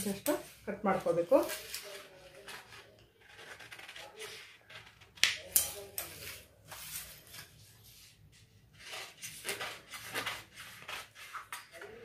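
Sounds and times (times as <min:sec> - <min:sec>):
paper rustling: 0:00.4 - 0:12.0
scissors cutting paper: 0:01.3 - 0:06.5.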